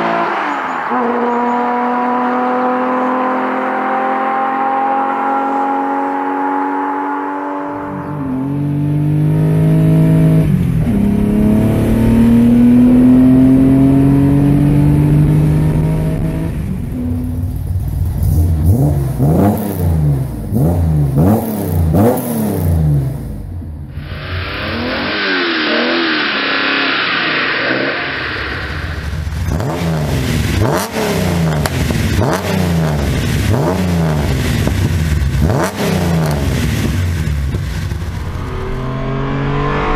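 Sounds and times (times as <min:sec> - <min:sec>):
car accelerating past: 0:00.0 - 0:23.0, 0:23.9 - 0:34.3
hiss: 0:24.0 - 0:29.3
engines revving in sharp blips: 0:24.0 - 0:39.9.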